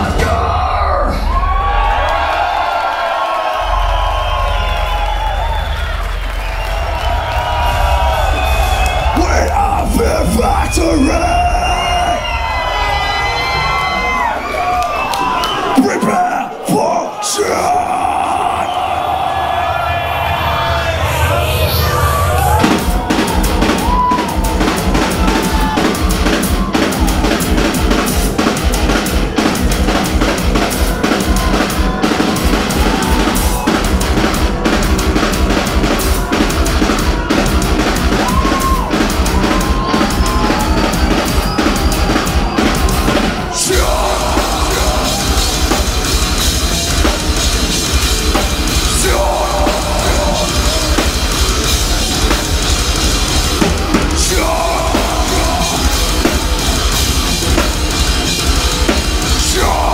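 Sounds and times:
metal band playing loudly: 0:00.0 - 0:59.9
fast kick drum beat: 0:22.6 - 0:59.9.

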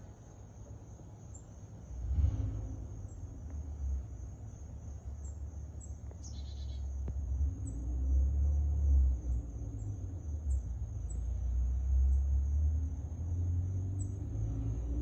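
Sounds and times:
low rumbling noise: 0:01.8 - 0:15.0
faint high chirps: 0:05.2 - 0:07.0.

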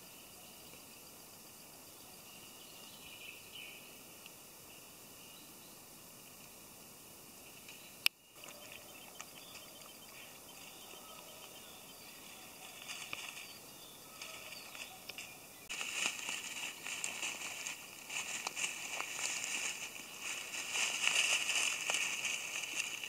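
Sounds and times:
footsteps crunching through dry leaves: 0:10.6 - 0:23.0.

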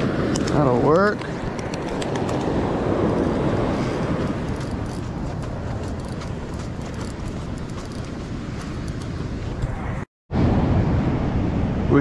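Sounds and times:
wind on microphone: 0:00.0 - 0:12.0
breaking surf: 0:08.4 - 0:12.0.

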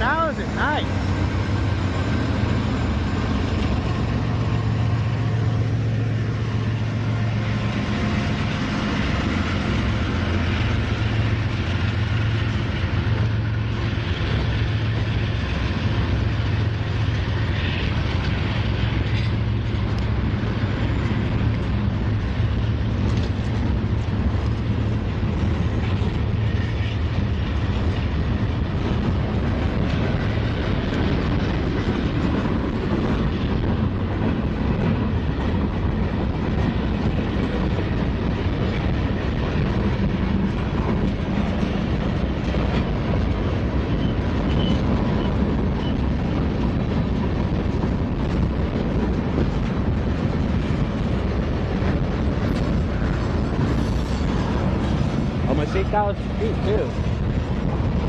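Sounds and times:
freight train passing: 0:00.0 - 0:58.0.

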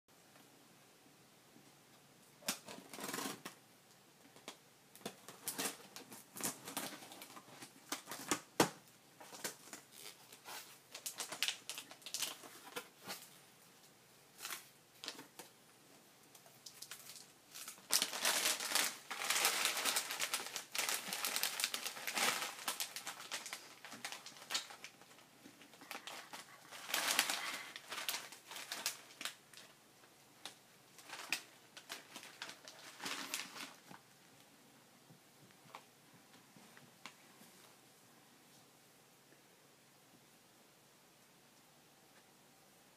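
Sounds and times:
cardboard box and plastic rustling: 0:16.7 - 0:29.6, 0:30.9 - 0:34.0.

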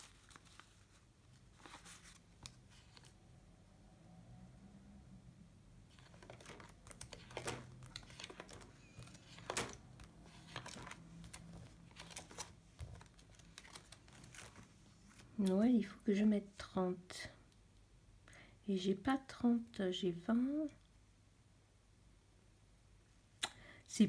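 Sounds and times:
pages being flipped: 0:00.0 - 0:03.2, 0:05.9 - 0:15.3.

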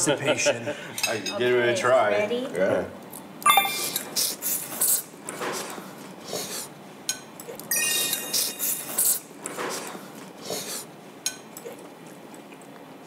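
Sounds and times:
bright chime-like ringing: 0:03.5 - 0:04.1, 0:07.7 - 0:08.9.

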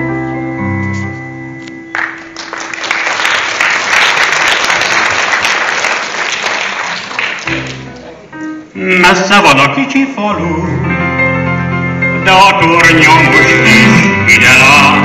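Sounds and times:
audience applauding: 0:01.9 - 0:08.1.

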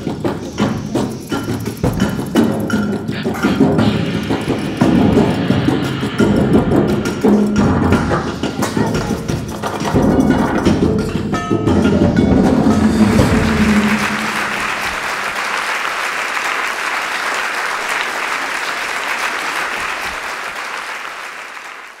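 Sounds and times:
percussion music: 0:00.0 - 0:21.1
audience applause: 0:12.7 - 0:22.0.

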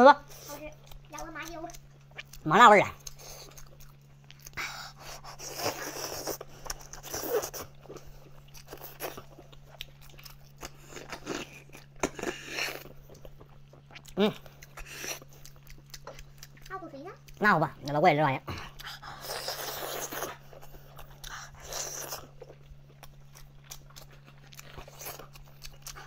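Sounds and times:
steady low hum: 0:00.0 - 0:26.0
person biting and chewing meat: 0:00.4 - 0:26.0.

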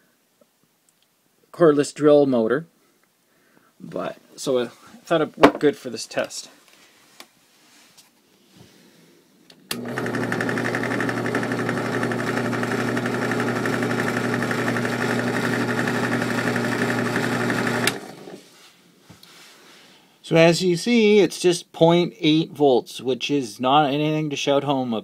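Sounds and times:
small electric motor whirring: 0:09.8 - 0:18.4.

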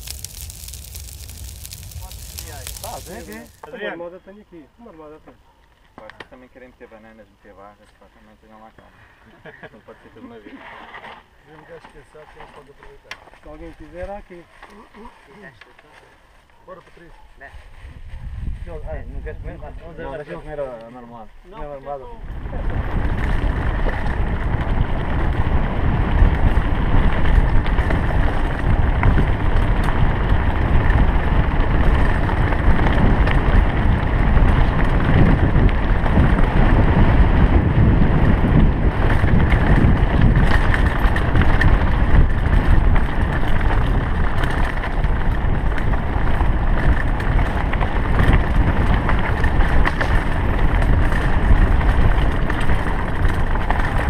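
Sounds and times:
bike rattling: 0:00.0 - 0:03.6, 0:22.2 - 0:54.0
tyres rumbling on loose stones: 0:00.0 - 0:03.7, 0:22.3 - 0:54.0
wind on microphone: 0:17.5 - 0:19.9, 0:22.1 - 0:54.0.

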